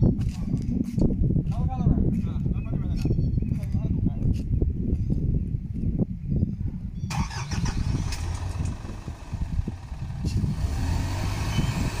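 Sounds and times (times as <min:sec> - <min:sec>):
diesel truck engine rumbling: 0:07.1 - 0:12.0.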